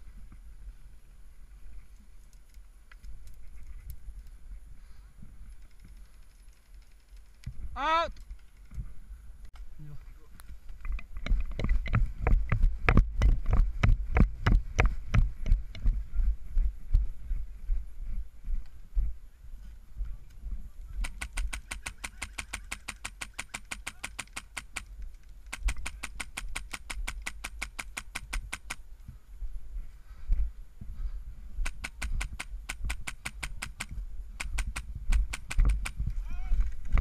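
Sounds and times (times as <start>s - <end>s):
airsoft rifle full-auto bursts: 21.0s - 24.9s, 25.5s - 28.8s, 31.6s - 36.0s.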